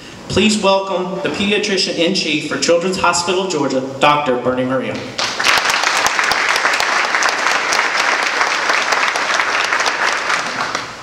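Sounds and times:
audience applauding: 5.2 - 11.0.

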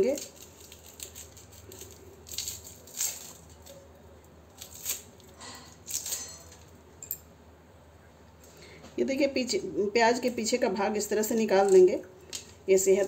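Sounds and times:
onion skin crackling and tearing: 0.0 - 6.3.

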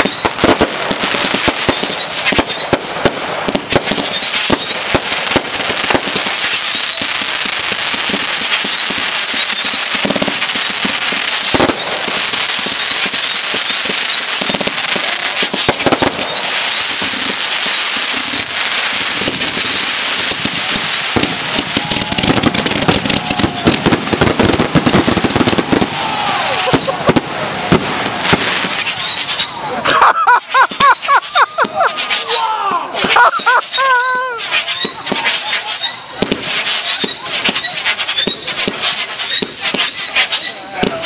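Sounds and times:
fireworks crackling and banging: 0.0 - 41.0.

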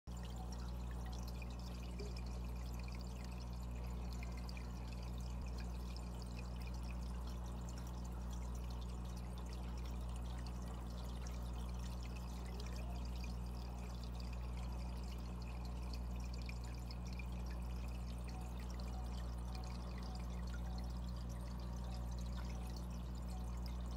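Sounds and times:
aquarium filter hum: 0.1 - 23.9
water trickling and splashing: 0.1 - 23.9.

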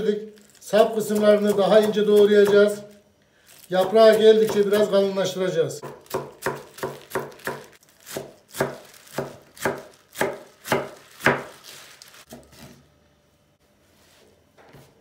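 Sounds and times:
knife chopping on wooden board: 5.8 - 11.6.

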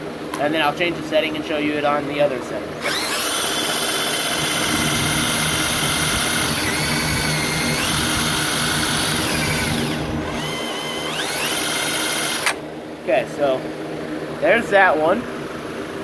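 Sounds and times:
electric drill whining: 2.8 - 12.6.

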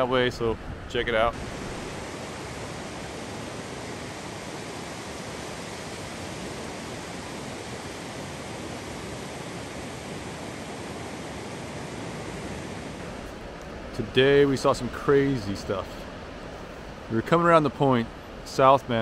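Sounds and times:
distant ocean surf: 0.0 - 19.0.

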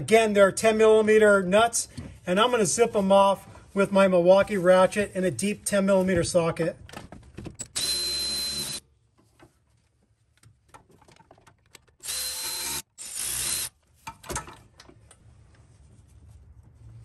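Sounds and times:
electric ratchet whining: 7.6 - 8.8, 12.0 - 13.8.

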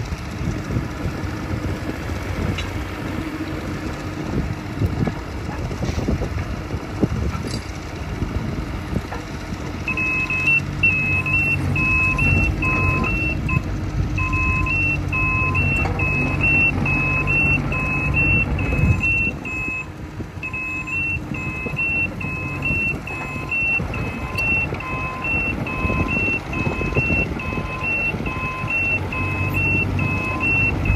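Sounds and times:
diesel engine running: 0.0 - 30.9
travel alarm beeping: 9.9 - 13.6, 14.2 - 30.9.

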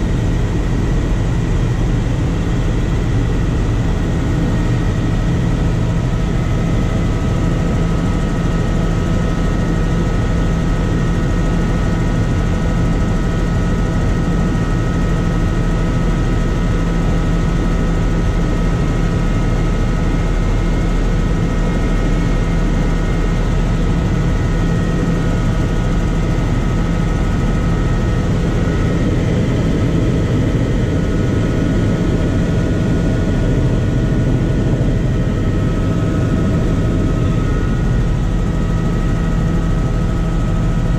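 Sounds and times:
helicopter rotor drone: 0.0 - 40.9
steady whining tones: 19.7 - 40.9.

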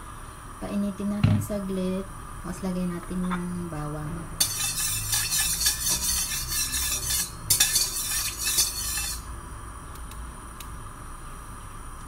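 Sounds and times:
metal spatula scraping a wok: 4.4 - 9.3.

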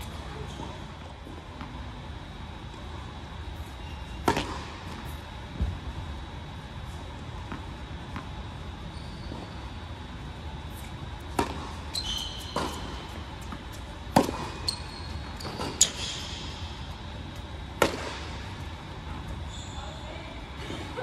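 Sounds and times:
shoes squeaking on court: 3.6 - 5.9, 6.9 - 20.4
tennis racket hitting ball: 4.2 - 4.8, 11.3 - 11.8, 12.5 - 14.7, 17.8 - 18.4.

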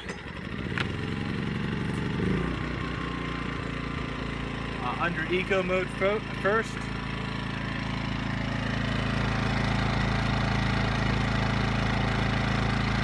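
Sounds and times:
generator engine humming: 0.0 - 13.0.

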